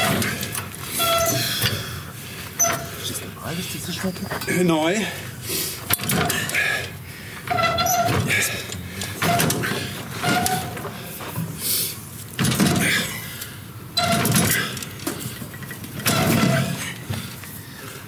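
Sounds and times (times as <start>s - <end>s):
heavy metal clanks and rattles: 0.0s - 3.0s, 5.8s - 11.6s, 12.4s - 13.3s, 14.0s - 17.6s.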